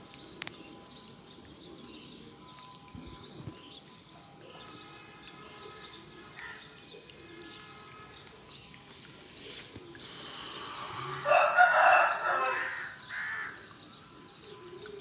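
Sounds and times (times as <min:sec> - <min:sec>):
rooster crowing: 0:11.0 - 0:13.6.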